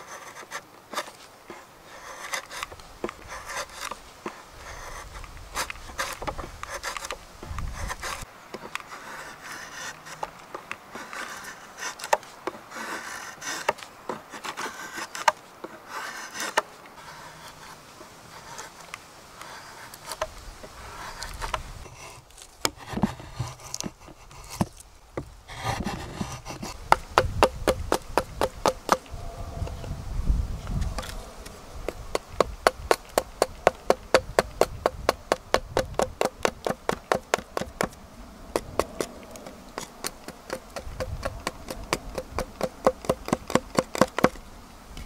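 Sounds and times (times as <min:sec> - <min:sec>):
knife shaving wood: 0:00.0 - 0:24.9, 0:25.5 - 0:29.0, 0:30.8 - 0:44.5
hatchet taps hewing wood: 0:31.9 - 0:37.9, 0:39.8 - 0:44.4.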